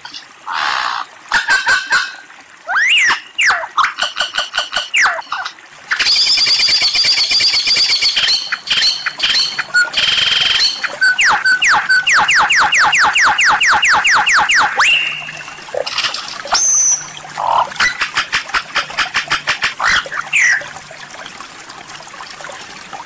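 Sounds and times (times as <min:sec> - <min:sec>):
lyrebird singing varied calls: 0:07.8 - 0:18.1, 0:19.1 - 0:20.7.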